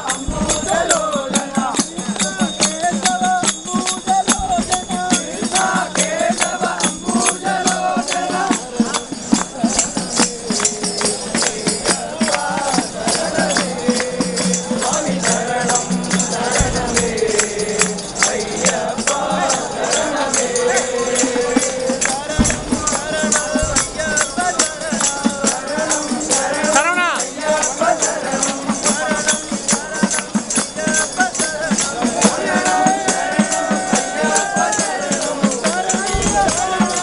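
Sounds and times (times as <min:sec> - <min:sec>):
crowd singing in unison: 0:00.0 - 0:37.0
tambourine and hand percussion: 0:00.0 - 0:37.0.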